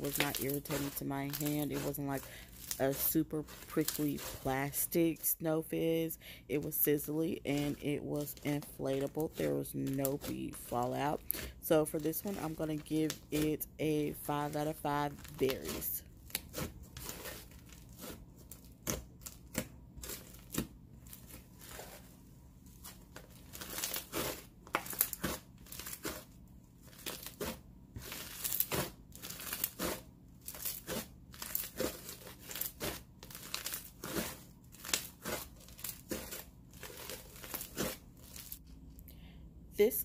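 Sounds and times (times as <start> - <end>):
slime crackling and popping: 0.1 - 1.4, 2.5 - 4.4, 26.9 - 38.6.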